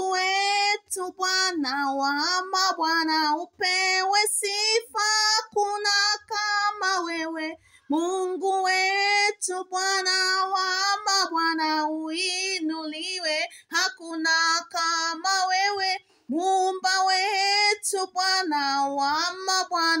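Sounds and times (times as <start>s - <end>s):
woman singing unaccompanied: 0.0s - 20.0s.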